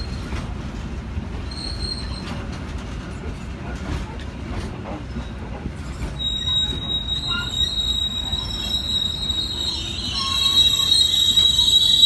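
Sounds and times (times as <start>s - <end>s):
train coaches rumbling past: 0.0s - 12.0s
high-pitched wheel squeal: 6.2s - 12.0s.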